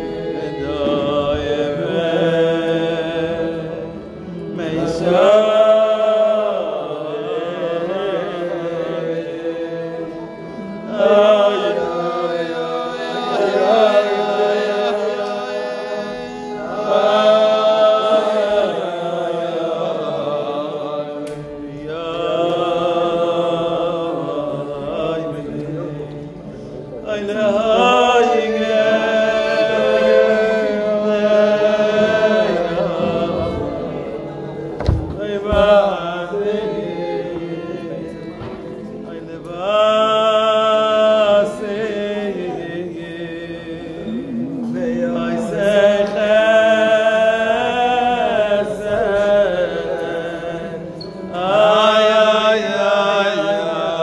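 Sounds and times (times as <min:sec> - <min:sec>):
steady held accompaniment: 0:00.0 - 0:54.0
men singing a slow melody: 0:34.7 - 0:54.0.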